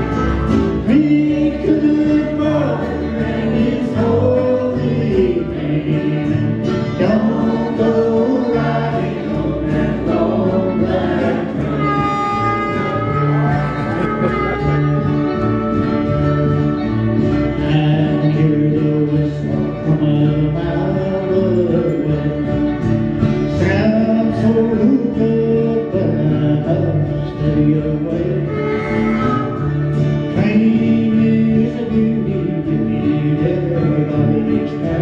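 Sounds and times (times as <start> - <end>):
harmonica: 0.0 - 4.3, 5.6 - 19.1, 27.0 - 31.2
strummed acoustic guitars: 0.0 - 35.0
man and woman singing: 0.8 - 12.2, 17.6 - 22.8, 23.6 - 29.1, 30.3 - 35.0.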